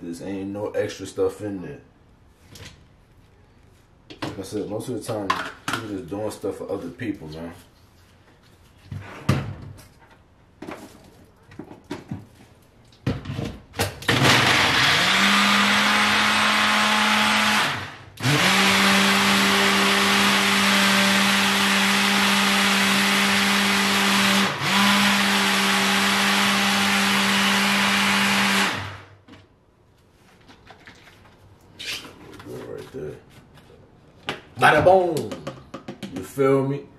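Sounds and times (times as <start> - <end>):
blender motor running: 14.1 - 29.1
clicks and knocks of blender cup: 35.1 - 36.2.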